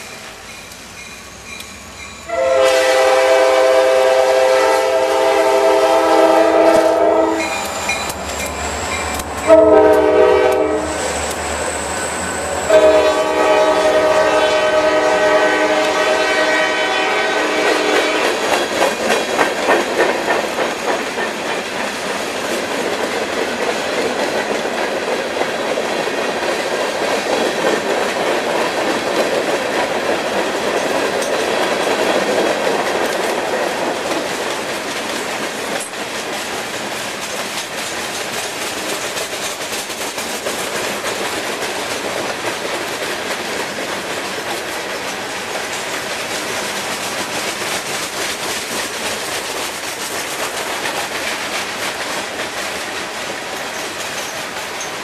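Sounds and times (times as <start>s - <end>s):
freight train rumbling past: 0.0s - 55.0s
locomotive horn blast: 2.3s - 7.8s, 9.5s - 11.1s, 12.6s - 18.4s.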